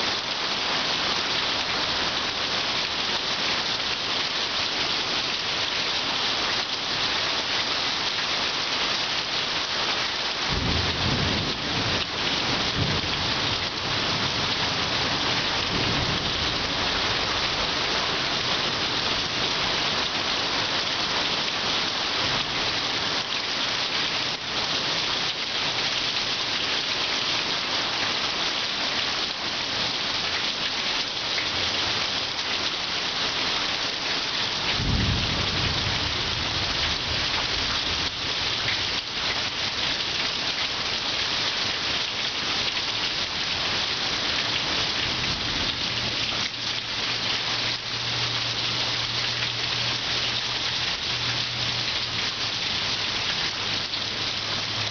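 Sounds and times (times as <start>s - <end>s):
heavy rain falling: 0.0s - 54.9s
thunder rumble: 34.8s - 37.3s.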